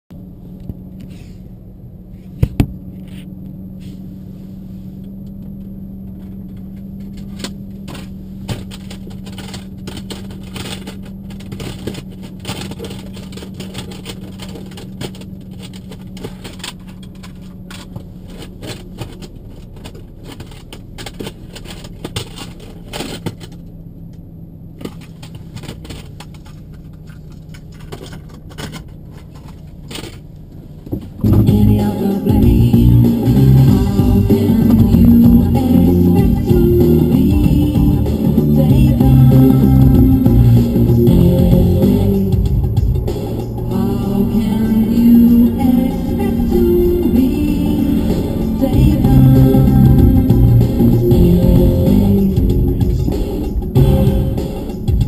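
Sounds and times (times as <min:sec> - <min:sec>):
car engine hum: 0:00.1 - 0:55.0
clicks and light rattles: 0:05.3 - 0:24.2, 0:24.8 - 0:31.1.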